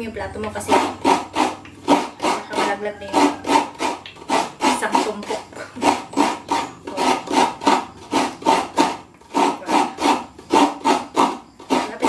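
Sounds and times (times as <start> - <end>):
coconut grating rasps: 0.3 - 12.0.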